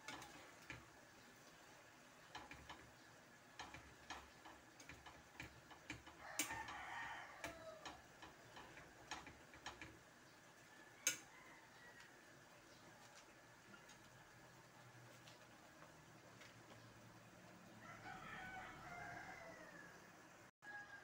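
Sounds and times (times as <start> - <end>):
metal spatula tapping frying pan: 0.0 - 0.9, 2.3 - 2.9, 3.5 - 10.0, 11.0 - 11.3.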